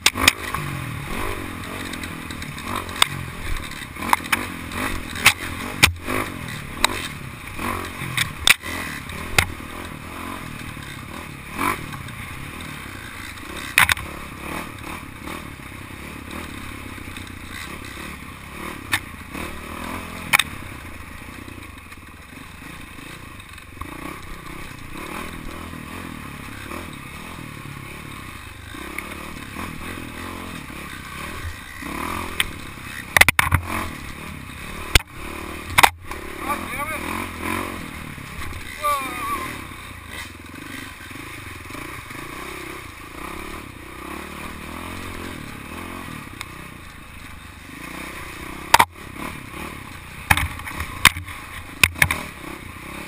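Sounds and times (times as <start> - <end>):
dirt bike engine: 0.0 - 53.0
bike knocks and rattles: 1.6 - 7.2, 13.0 - 14.2, 31.4 - 33.8, 34.8 - 36.1, 50.2 - 52.3.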